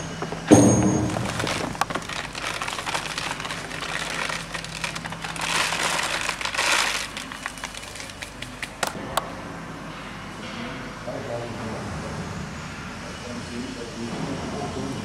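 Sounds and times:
woven bag rustling and crinkling: 0.1 - 8.8
plastic granules pouring: 1.0 - 8.5.

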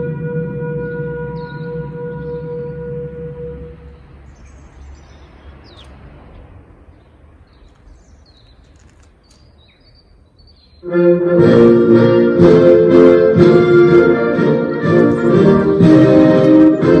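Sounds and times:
held brass note: 0.0 - 4.2, 10.8 - 17.0
small birds chirping: 3.8 - 10.9.

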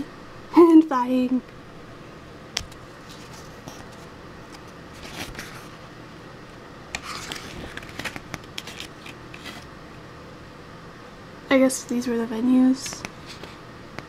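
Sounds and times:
pages being turned: 2.6 - 5.7, 7.0 - 9.7.

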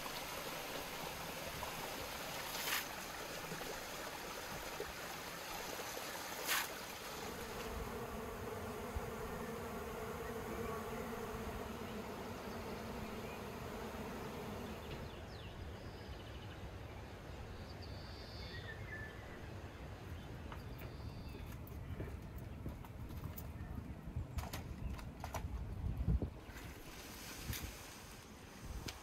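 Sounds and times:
bees buzzing: 6.7 - 15.2.

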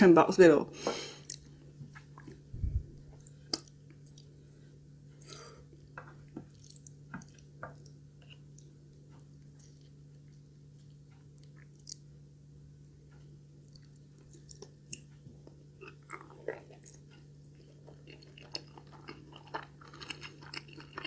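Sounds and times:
faint steady hum: 0.0 - 21.0
person chewing food: 1.1 - 12.1, 13.1 - 21.0.

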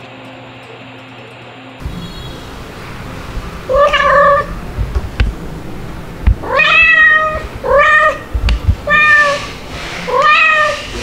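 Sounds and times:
dull bumps: 1.8 - 10.3
cat meowing: 3.7 - 4.6, 6.4 - 11.0.

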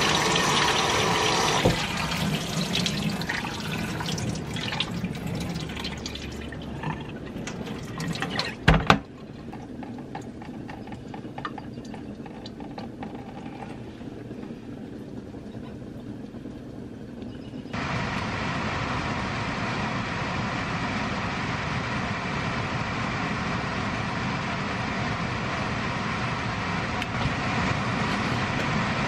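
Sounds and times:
water splashing in bowl: 0.0 - 10.4
faint clicks and drips: 1.6 - 17.8.

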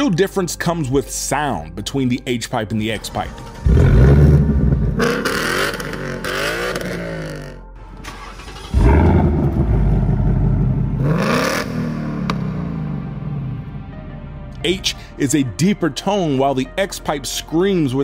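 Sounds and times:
car engine revving: 3.2 - 14.0.

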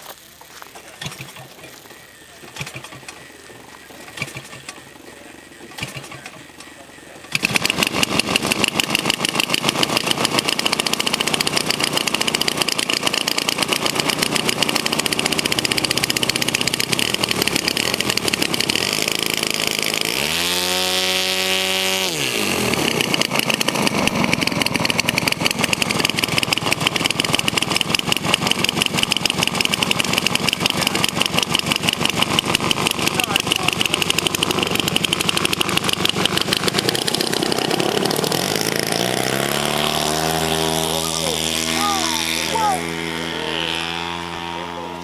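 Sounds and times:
model plane engine idling: 0.4 - 45.0.

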